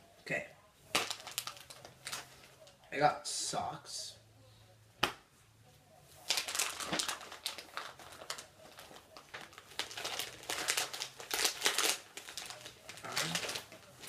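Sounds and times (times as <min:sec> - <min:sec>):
packaging crinkling: 0:00.9 - 0:02.7, 0:06.2 - 0:14.0.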